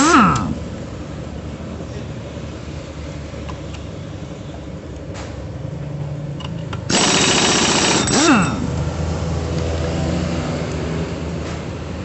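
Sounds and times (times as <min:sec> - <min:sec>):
pneumatic impact wrench burst: 0:00.0 - 0:00.6, 0:06.9 - 0:08.7.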